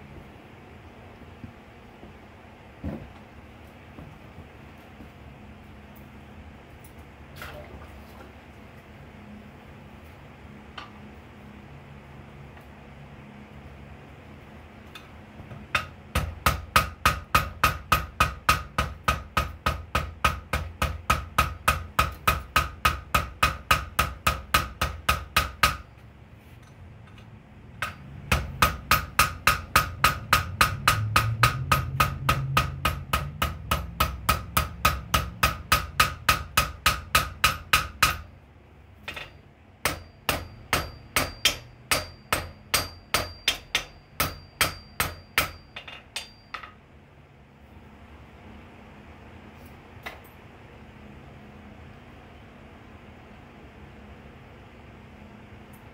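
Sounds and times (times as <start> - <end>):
hammer striking steel on anvil: 15.7 - 26.0, 27.1 - 38.3, 39.0 - 46.8.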